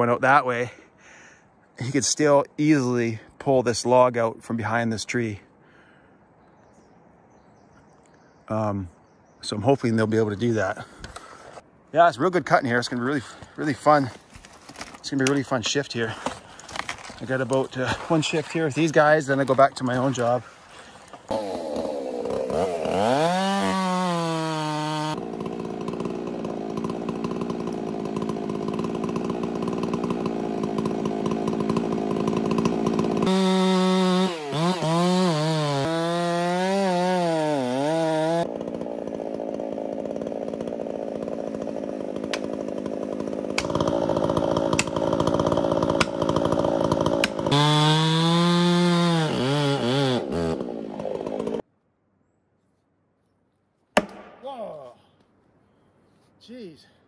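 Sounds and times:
chainsaw cutting wood: 13.4s - 15.4s, 16.1s - 51.6s.

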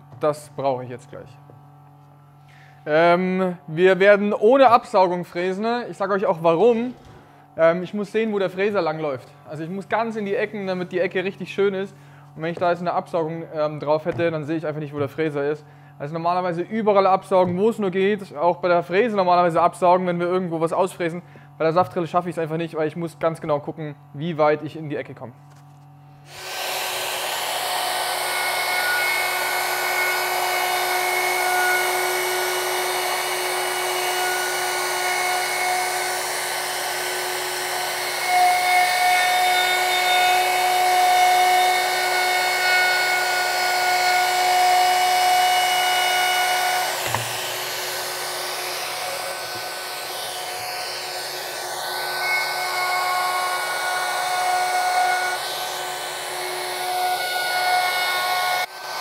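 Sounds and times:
router whining at high speed: 26.2s - 59.0s.

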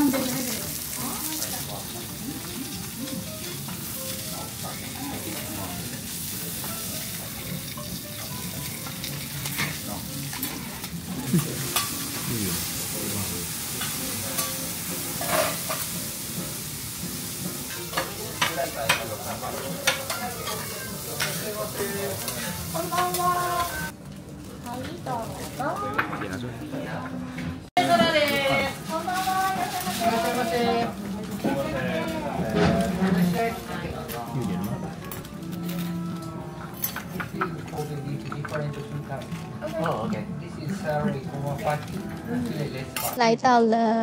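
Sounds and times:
beef sizzling on a griddle: 0.0s - 25.8s, 27.8s - 35.0s.

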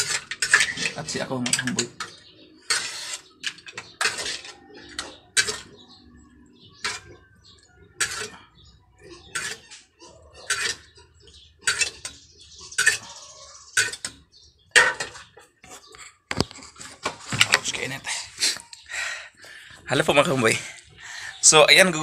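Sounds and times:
metal ladle clanking in a wok: 11.6s - 13.1s.

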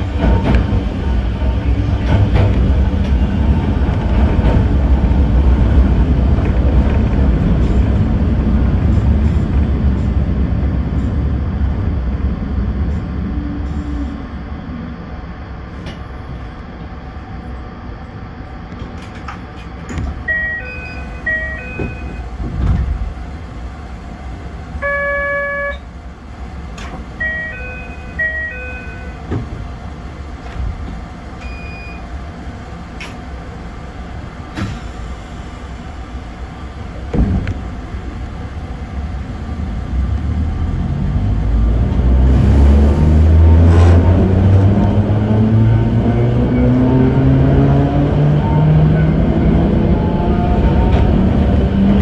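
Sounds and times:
buzzer tone: 24.8s - 25.8s
electronic chime melody: 27.2s - 29.2s.

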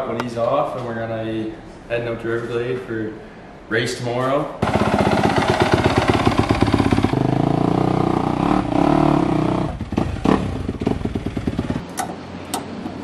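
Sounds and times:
dirt bike engine revving: 4.6s - 11.9s.

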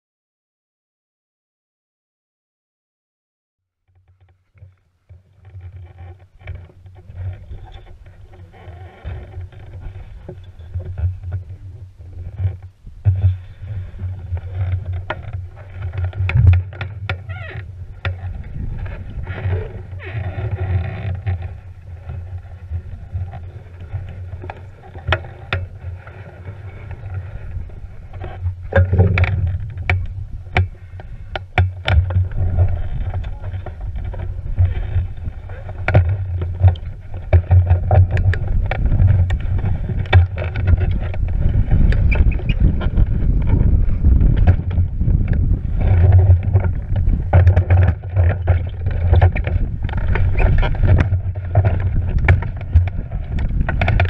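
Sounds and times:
wind buffeting microphone: 5.5s - 54.0s
knocks from glider frame: 28.2s - 54.0s.

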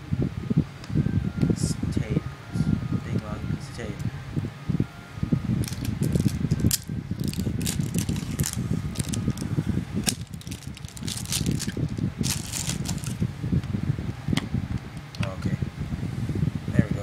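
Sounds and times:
stiff plastic packaging crackling: 5.6s - 13.2s.

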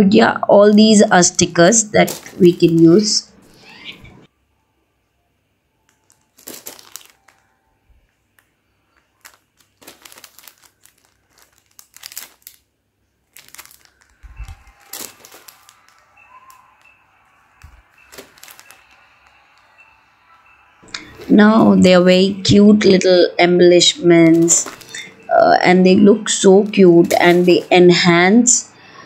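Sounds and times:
plastic packets crinkling: 1.9s - 4.0s, 5.8s - 21.3s, 24.2s - 25.4s, 26.5s - 28.0s.

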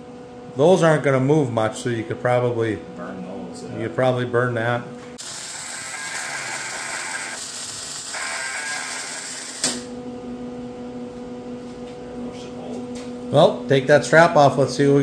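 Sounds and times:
steady low hum: 0.0s - 6.0s, 9.2s - 15.0s
welding arc crackling: 5.2s - 9.9s.

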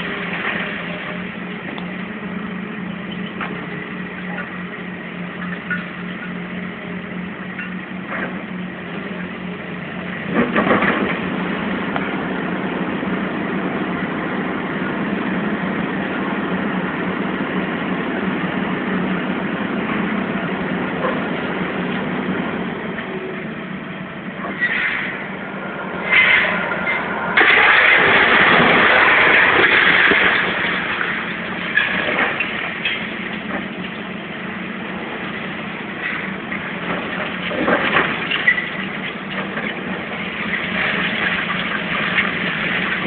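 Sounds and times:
heavy machinery engines running: 0.0s - 43.0s
loud noise burst: 24.7s - 32.0s.

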